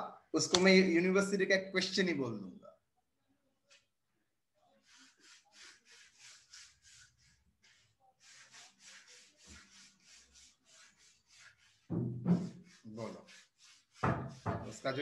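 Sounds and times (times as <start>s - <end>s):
faint scratchy rubbing strokes: 4.6s - 15.0s.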